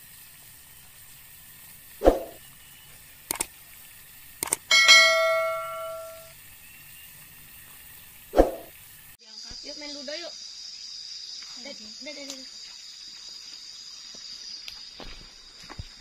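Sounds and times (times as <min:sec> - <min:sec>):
bell chime: 0:04.7 - 0:06.3.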